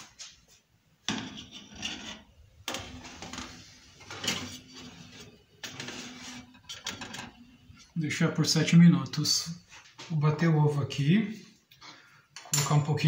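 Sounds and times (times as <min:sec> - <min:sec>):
metal pan scraping on oven rack: 0:01.1 - 0:07.4.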